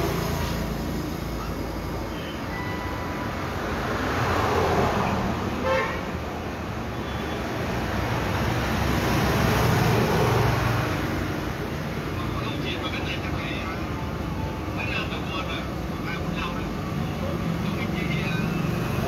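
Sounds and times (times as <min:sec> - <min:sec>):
road traffic passing: 0:00.0 - 0:19.0
truck passing: 0:00.0 - 0:19.0
vehicle horn beep: 0:02.1 - 0:03.3, 0:05.6 - 0:06.1, 0:06.9 - 0:07.4.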